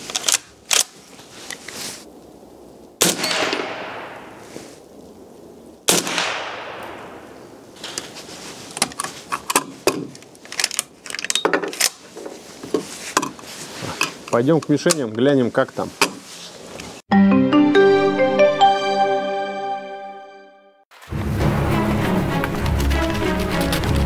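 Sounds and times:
rifle shots with echo: 3.0 - 4.4, 5.9 - 7.4.

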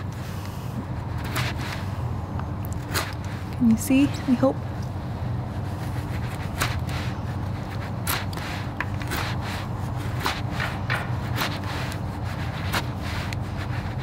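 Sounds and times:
knife scraping wood: 5.5 - 14.0.

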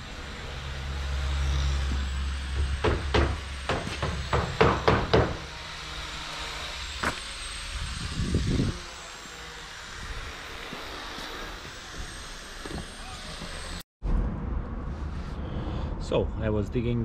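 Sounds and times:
sharp knocks: 2.6 - 5.5
low outdoor rumble: 13.5 - 17.0
rustling scrape: 14.7 - 15.9.

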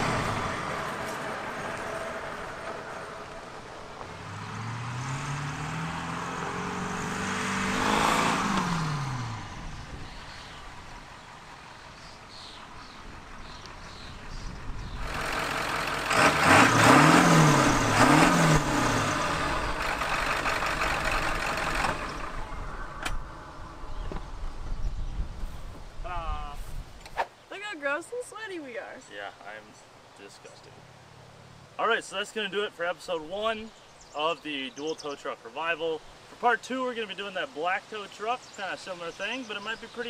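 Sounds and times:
diesel engine revving: 0.0 - 24.8.

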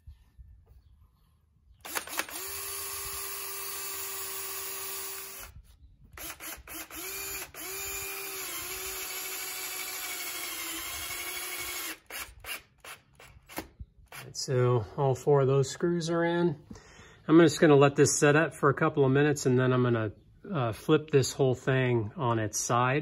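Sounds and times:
sharp clicks: 1.8 - 2.6
cordless drill whining: 1.8 - 14.3.

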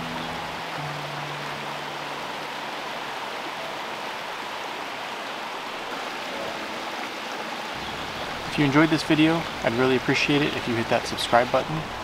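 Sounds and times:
stream splashing over rocks: 0.0 - 12.0.

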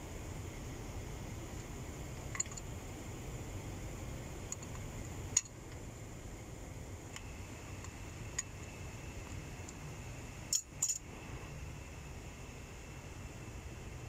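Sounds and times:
steady low hum: 0.0 - 14.0
spanner clicking on metal fitting: 10.5 - 11.0.

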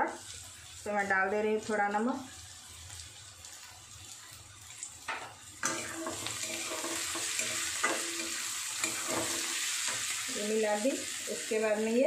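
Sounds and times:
vegetables frying in oil: 0.0 - 12.0
metal spatula scraping a pan: 5.6 - 10.3.

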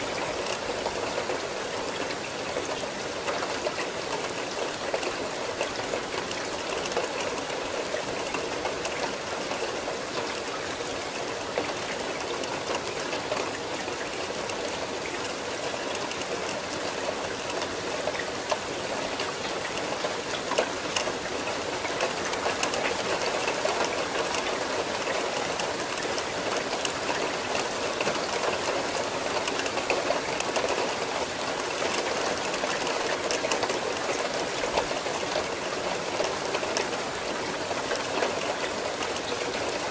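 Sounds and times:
raindrop ticks: 0.0 - 39.9
steady rain falling: 0.0 - 39.9.

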